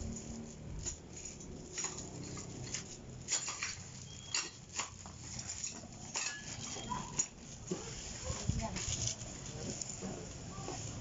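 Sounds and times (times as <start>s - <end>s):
small metal parts clicking: 0.0s - 7.4s.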